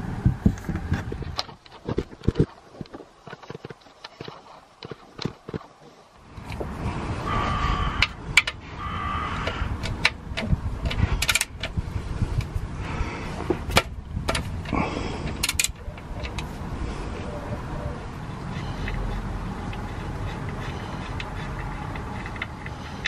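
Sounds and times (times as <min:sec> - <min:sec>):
ratchet clicking on bolts: 0:09.4 - 0:11.8, 0:15.3 - 0:16.5.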